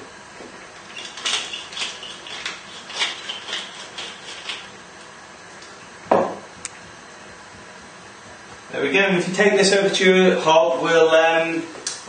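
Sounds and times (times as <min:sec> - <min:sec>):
pepper mill grinding: 0:00.8 - 0:04.8.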